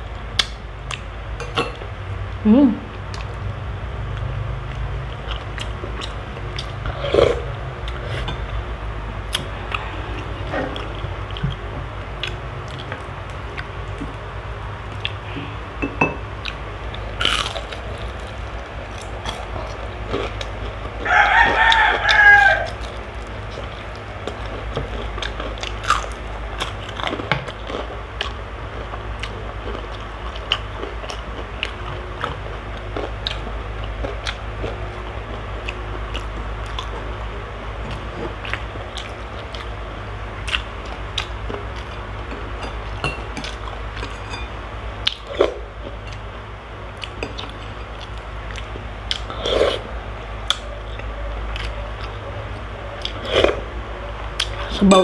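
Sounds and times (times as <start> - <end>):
steady low hum: 0.0 - 55.0
chewing crispy food: 3.0 - 8.6, 9.3 - 15.4, 16.3 - 44.2, 45.0 - 54.7
rooster crowing: 21.0 - 22.8.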